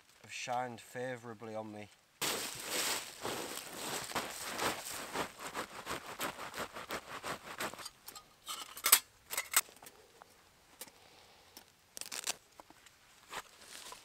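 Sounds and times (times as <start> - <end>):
dry leaves rustling: 2.2 - 7.9, 12.0 - 12.4, 13.2 - 14.0.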